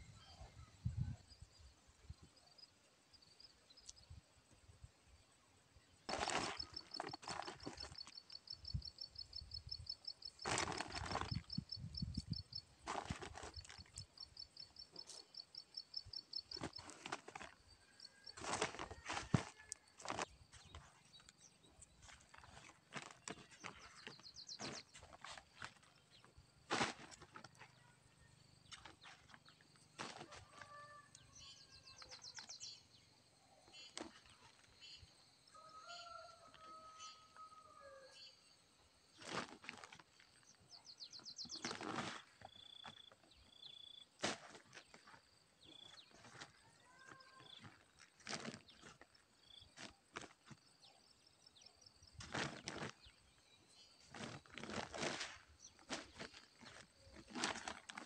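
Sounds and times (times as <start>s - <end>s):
plastic sack rustling: 6.1s - 8.1s, 10.4s - 11.6s, 12.8s - 14.0s, 16.5s - 17.6s, 18.4s - 20.9s, 22.0s - 27.7s, 28.7s - 30.4s, 39.2s - 40.1s, 41.6s - 42.4s, 47.6s - 49.1s, 52.2s - 53.0s, 54.0s - 58.0s.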